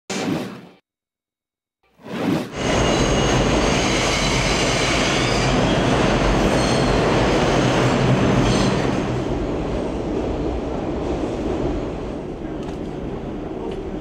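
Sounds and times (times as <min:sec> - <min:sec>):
wheels squealing on rail: 0:02.5 - 0:09.2
subway train rumble: 0:02.6 - 0:14.0.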